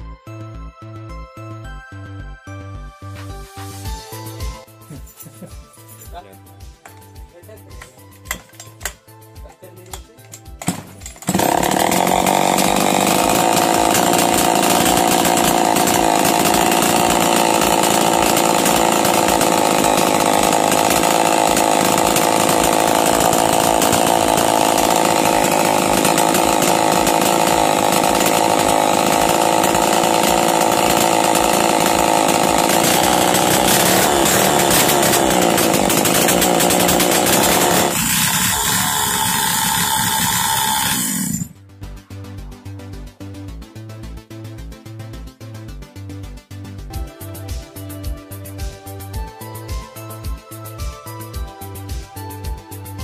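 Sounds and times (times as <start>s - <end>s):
brush cutter engine running: 10.6s - 41.6s.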